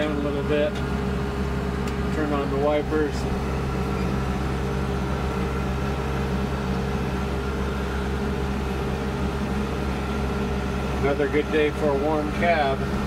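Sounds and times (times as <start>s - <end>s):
tractor diesel engine drone: 0.0s - 13.0s.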